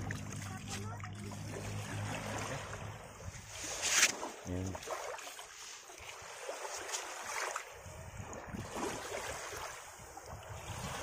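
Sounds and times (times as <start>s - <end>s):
small waves washing on sand: 0.0s - 11.0s
wind rumbling on microphone: 7.7s - 11.0s.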